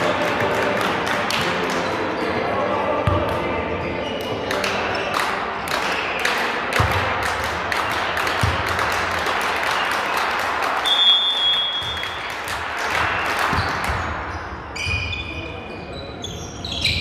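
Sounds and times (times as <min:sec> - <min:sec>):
crowd applauding: 0:04.6 - 0:13.9.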